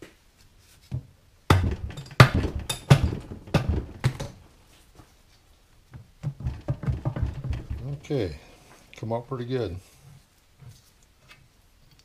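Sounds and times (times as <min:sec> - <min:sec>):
heavy metal cover knocking on housing: 0:01.5 - 0:04.4, 0:06.2 - 0:08.2.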